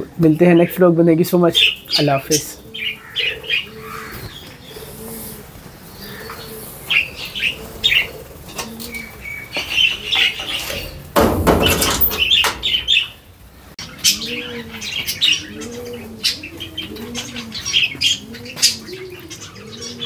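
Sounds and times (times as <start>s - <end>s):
parrots chirping and calling: 0.5s - 20.0s
low cooing call: 2.6s - 10.9s, 13.8s - 20.0s.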